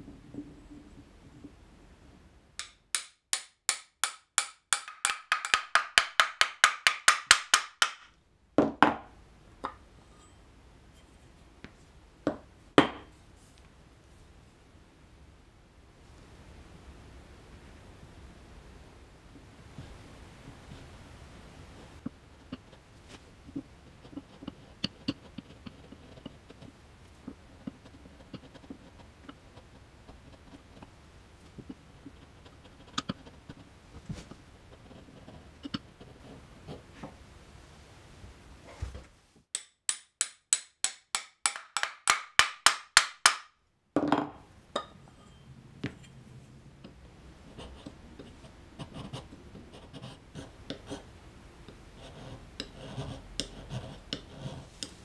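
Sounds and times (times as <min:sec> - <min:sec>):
sharp knocks on wood: 0:12.3 - 0:13.1.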